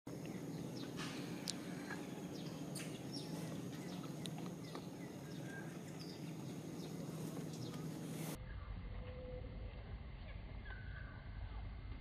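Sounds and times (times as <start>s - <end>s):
high animal chirps and ticks: 0.1s - 8.3s
steady low hum: 0.1s - 12.0s.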